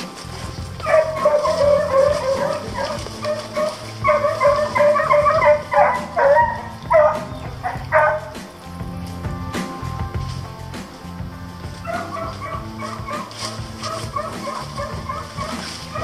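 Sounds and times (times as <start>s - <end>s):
hounds baying: 0.0s - 9.8s, 11.5s - 16.0s.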